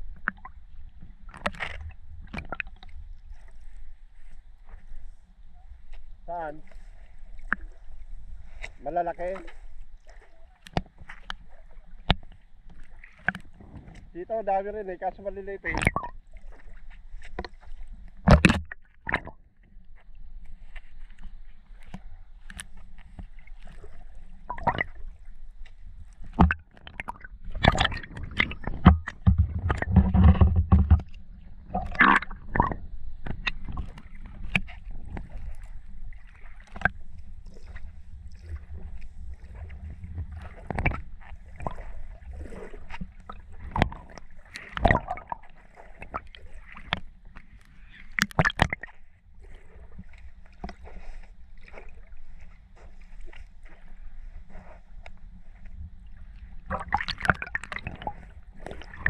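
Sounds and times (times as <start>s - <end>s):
underwater knocks and clicks: 0.0s - 3.0s, 10.6s - 14.1s, 15.7s - 20.2s, 24.4s - 49.1s, 49.9s - 51.0s, 55.0s - 59.0s
muffled underwater water rumble: 0.0s - 59.0s.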